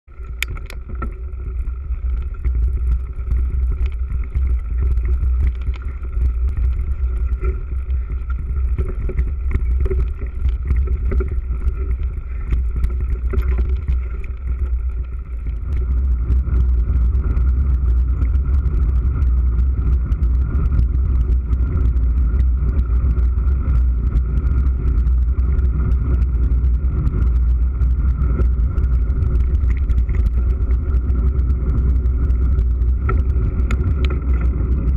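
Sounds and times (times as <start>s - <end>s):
wind noise on microphone: 0.0s - 34.9s
bike clicks and rattles: 0.1s - 34.9s.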